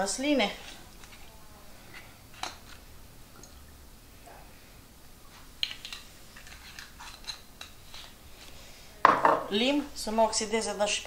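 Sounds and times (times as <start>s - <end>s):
glass bottle knocking on stone: 9.1s - 9.4s.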